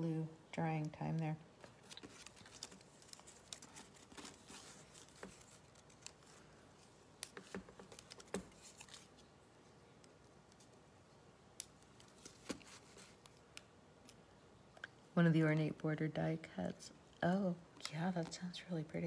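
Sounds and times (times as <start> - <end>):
paper rustling: 1.6 - 9.3, 11.8 - 13.4.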